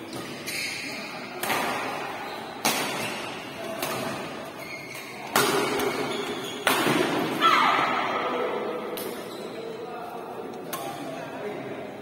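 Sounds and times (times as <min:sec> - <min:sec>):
rackets striking shuttlecock: 0:02.6 - 0:04.3, 0:05.0 - 0:07.3.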